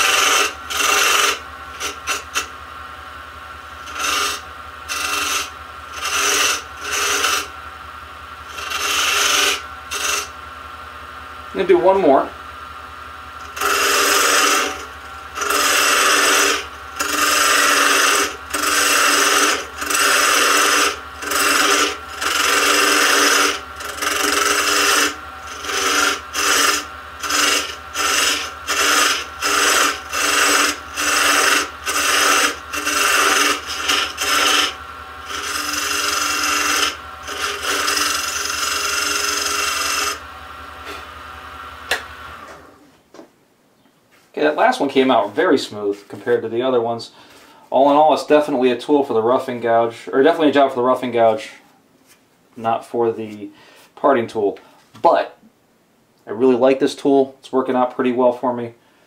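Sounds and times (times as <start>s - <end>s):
lathe motor hum: 0.0s - 42.8s
tool cutting spinning wood: 0.0s - 42.9s.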